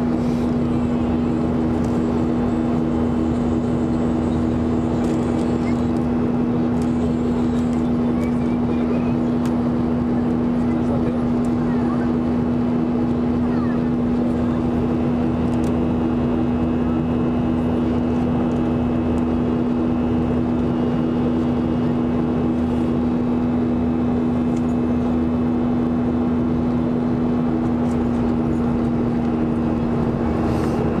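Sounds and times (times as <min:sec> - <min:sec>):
aircraft engine and air rush: 0:00.0 - 0:31.0
low hum: 0:00.0 - 0:31.0.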